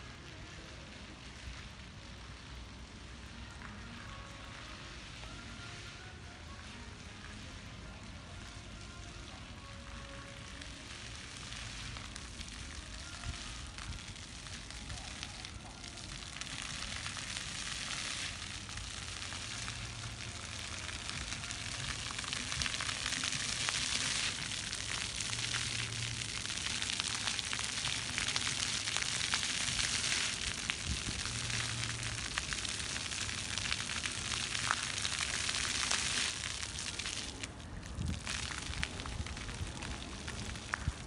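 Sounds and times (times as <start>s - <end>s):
fountain water splashing on paving: 0.0s - 41.0s.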